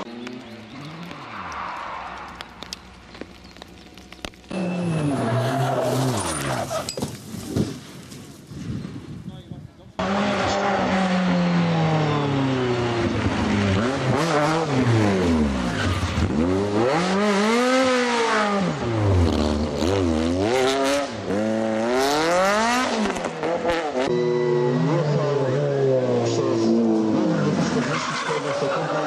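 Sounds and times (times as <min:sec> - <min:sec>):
race car engine revving: 0:10.0 - 0:29.0.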